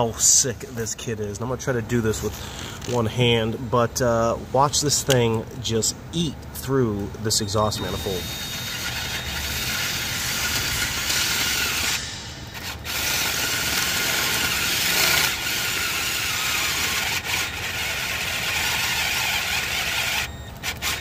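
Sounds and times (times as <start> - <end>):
drill bit grinding metal: 7.8 - 21.0.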